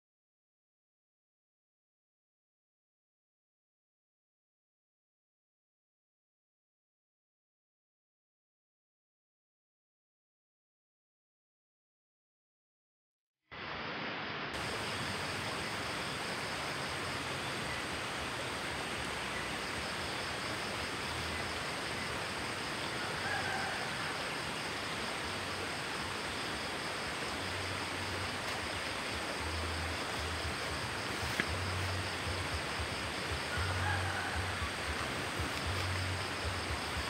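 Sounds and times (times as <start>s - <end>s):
stream rushing: 13.6s - 37.0s.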